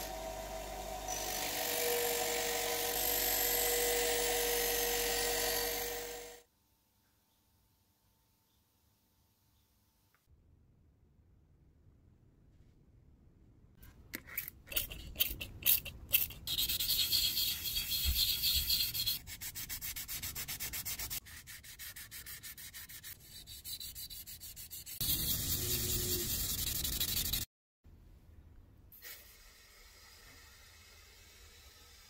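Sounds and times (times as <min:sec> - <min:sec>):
metal dish being wet-sanded: 0:14.7 - 0:27.4.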